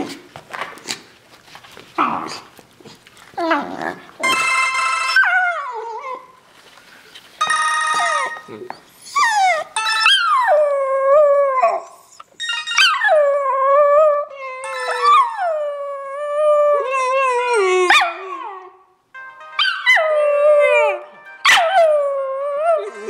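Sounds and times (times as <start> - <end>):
phone ringtone: 4.2 - 5.8, 7.4 - 8.6, 19.2 - 21.8.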